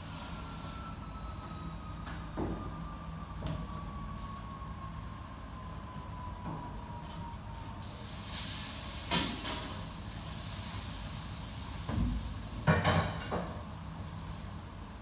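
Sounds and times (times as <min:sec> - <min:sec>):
food sizzling in a hot pan: 0:07.9 - 0:12.3.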